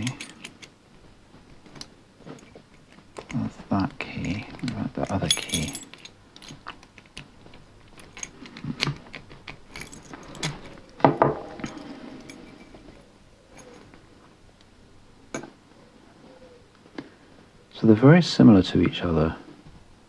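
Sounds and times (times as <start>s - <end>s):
keys jangling and clinking: 0.0s - 0.8s, 4.1s - 13.9s.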